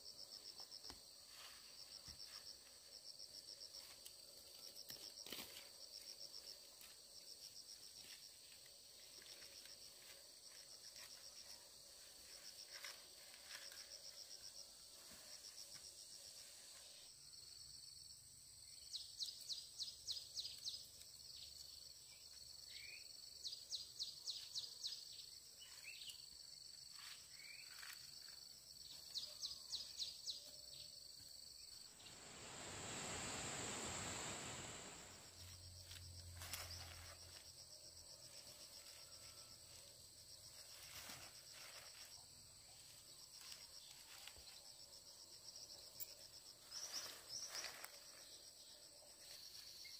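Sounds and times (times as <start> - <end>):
insects chirping in quick pulses: 29.2 - 42.2
rush of noise: 31.9 - 35.4
high-pitched insect drone: 31.9 - 37.4.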